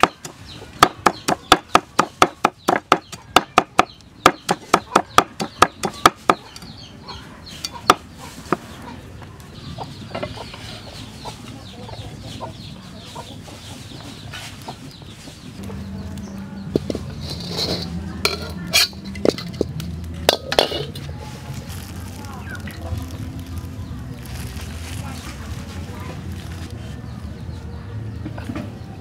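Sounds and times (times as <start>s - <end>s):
cleaver chopping on wooden block: 0.0s - 6.4s
scraping and clinks: 16.8s - 19.7s.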